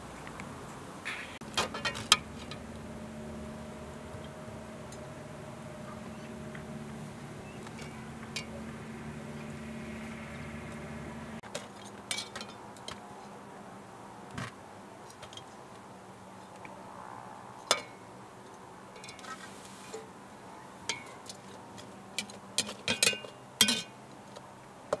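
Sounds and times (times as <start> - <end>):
steady low hum: 0.6 - 11.4.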